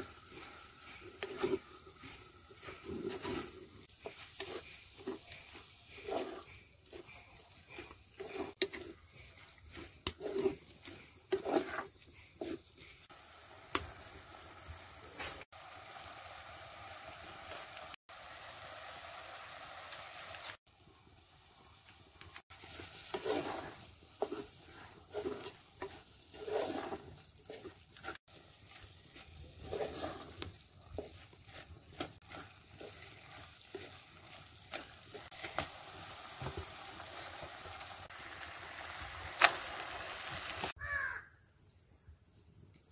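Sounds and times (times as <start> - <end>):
spatula scraping pot: 0.0 - 13.1, 22.6 - 37.8
food sizzling: 0.0 - 40.8.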